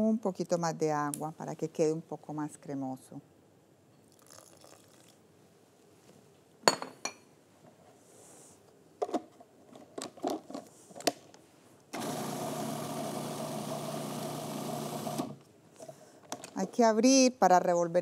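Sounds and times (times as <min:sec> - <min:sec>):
food processor motor humming: 0:12.0 - 0:15.4.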